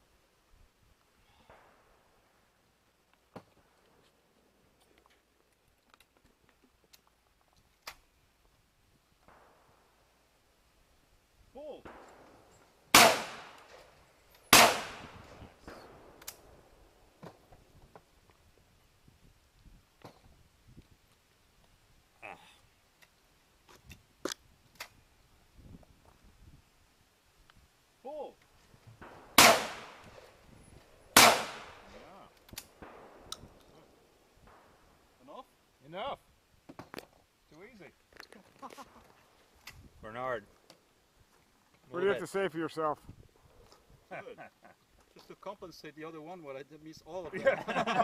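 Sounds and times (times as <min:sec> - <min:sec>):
shotgun shots echoing: 0:11.8 - 0:13.8, 0:14.5 - 0:16.5, 0:29.0 - 0:30.2, 0:31.1 - 0:32.1, 0:32.7 - 0:33.5.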